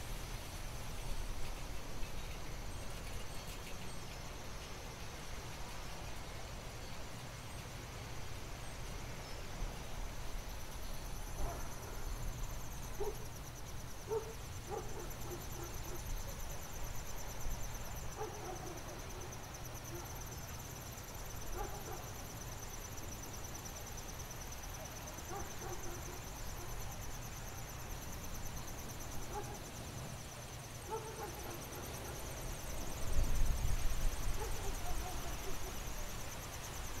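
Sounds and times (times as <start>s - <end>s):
night insects trilling: 0.0s - 37.0s
distant dog barks: 11.4s - 12.1s, 13.0s - 13.3s, 14.1s - 16.4s, 18.1s - 20.1s, 21.5s - 22.1s, 25.2s - 26.8s, 29.2s - 29.7s, 30.8s - 32.3s, 34.4s - 35.8s.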